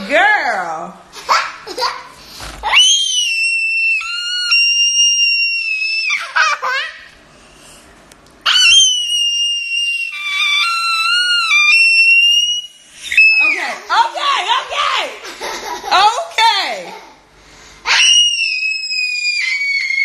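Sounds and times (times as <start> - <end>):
girl laughing: 15.2 - 17.2
girl shrieking playfully: 17.9 - 20.0.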